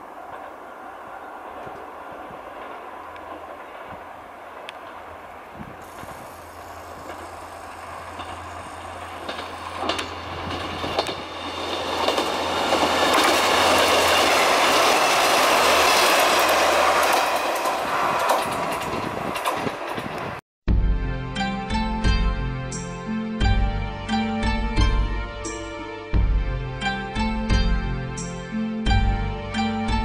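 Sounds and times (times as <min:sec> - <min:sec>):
diesel railcar passing: 0:00.0 - 0:20.4
wheels clicking over rail joints: 0:00.0 - 0:20.4.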